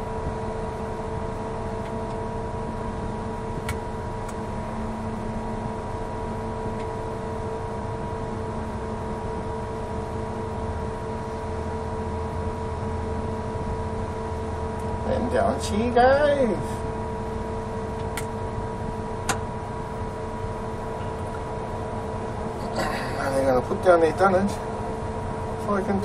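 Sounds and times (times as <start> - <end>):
crane diesel engine running: 0.0 - 26.0
high whine: 0.0 - 26.0.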